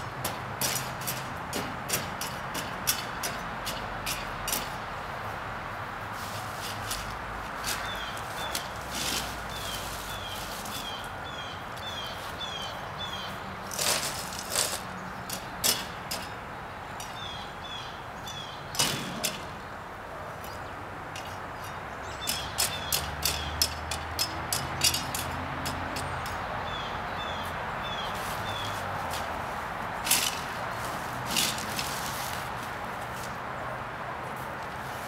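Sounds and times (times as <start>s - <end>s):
hand rake scraping ground: 6.1s - 11.1s, 13.6s - 16.3s, 28.1s - 33.4s.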